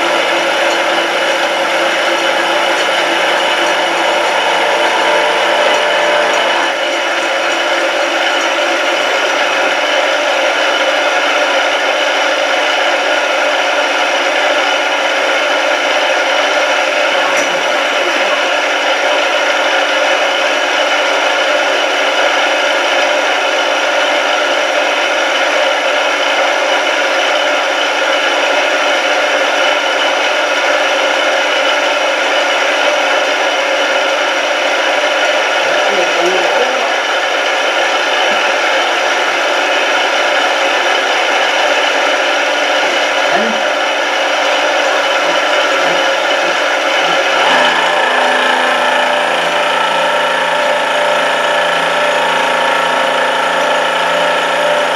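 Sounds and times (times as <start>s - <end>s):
spindle whine: 0.0s - 11.7s, 44.4s - 54.9s
milling machine cutting steel: 0.0s - 54.9s.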